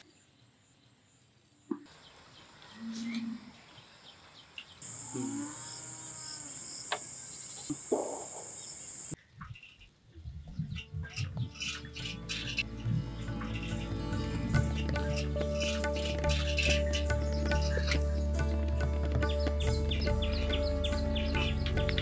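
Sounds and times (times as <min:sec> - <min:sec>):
high insect drone: 0:04.8 - 0:09.2.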